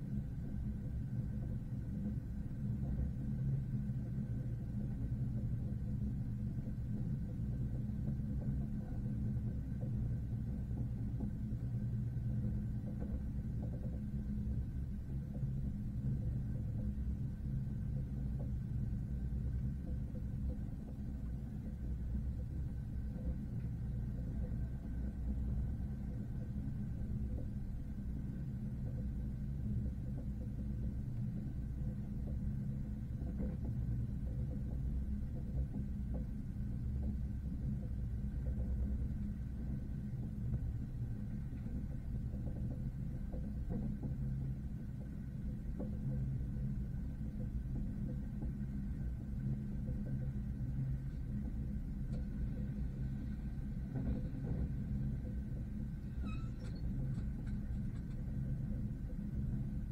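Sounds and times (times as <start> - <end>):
train rumbling: 0.0 - 59.9.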